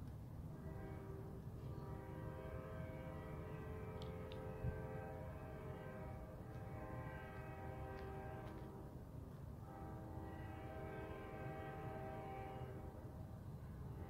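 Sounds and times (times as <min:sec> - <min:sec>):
train air horn blasts: 0:00.6 - 0:09.0, 0:09.6 - 0:13.1.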